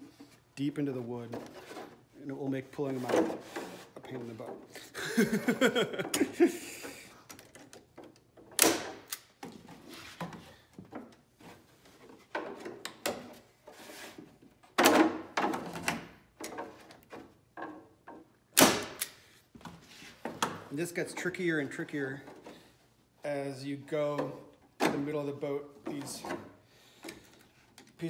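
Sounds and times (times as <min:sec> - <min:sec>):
staple gun firing: 0:08.6 - 0:09.3, 0:18.6 - 0:19.2.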